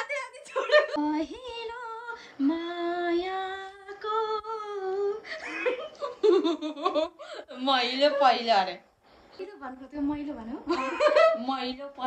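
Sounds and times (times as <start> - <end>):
woman singing: 0.0 - 5.3
woman laughing: 0.4 - 1.0, 5.3 - 7.5, 10.7 - 11.5.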